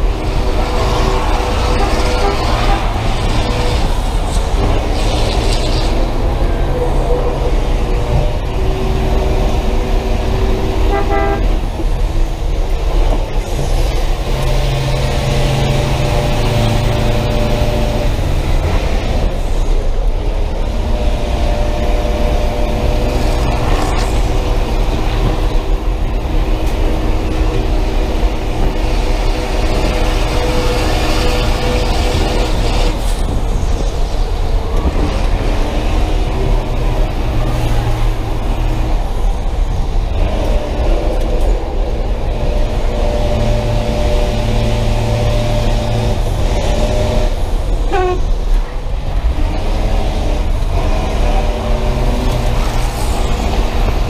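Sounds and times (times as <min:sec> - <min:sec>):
bus engine running hard: 0:00.0 - 0:54.0
road and rattle noise: 0:00.0 - 0:54.0
horn toot: 0:01.6 - 0:03.2, 0:10.8 - 0:11.6.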